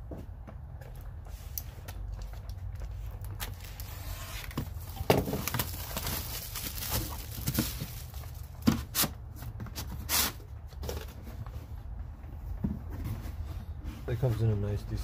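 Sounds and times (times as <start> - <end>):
shrink wrap crinkling and tearing: 1.9 - 9.1.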